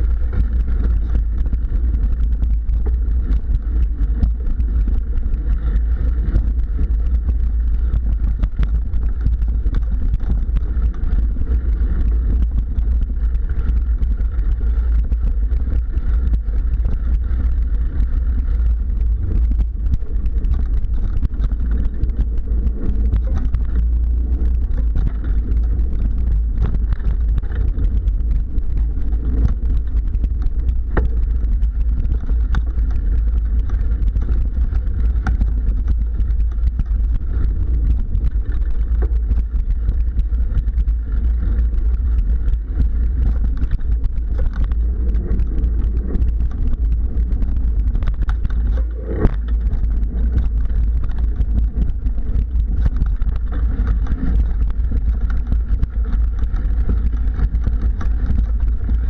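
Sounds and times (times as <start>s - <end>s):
mountain bike rolling on dirt trail: 0.0s - 59.0s
small rattles and clicks: 0.0s - 59.0s.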